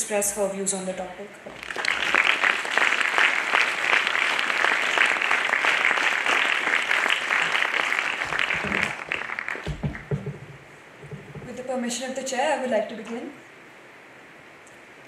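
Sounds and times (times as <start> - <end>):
audience applauding: 1.5 - 10.4
low thumps: 8.3 - 11.7.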